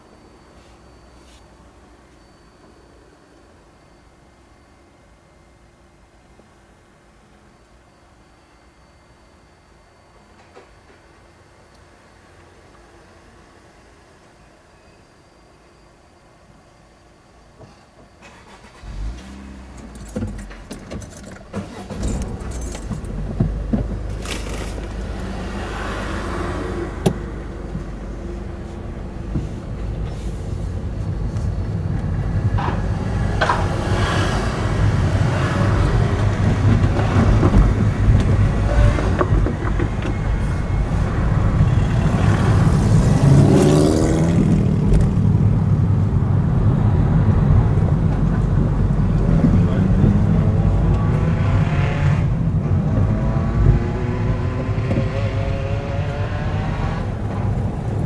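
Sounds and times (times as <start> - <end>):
car engine and tyres from inside: 0.0 - 15.0, 16.8 - 58.0.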